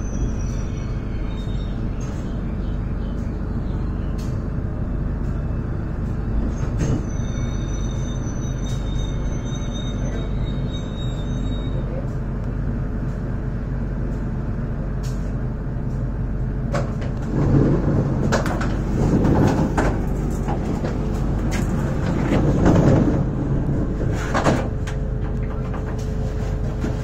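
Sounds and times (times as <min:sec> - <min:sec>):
train rumbling on rails: 0:00.0 - 0:27.0
sharp knocks and clatter: 0:16.7 - 0:23.3.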